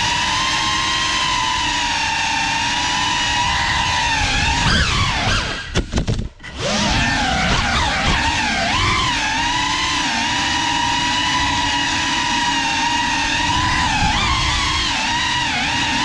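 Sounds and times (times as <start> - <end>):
drone motors whining: 0.0 - 16.0.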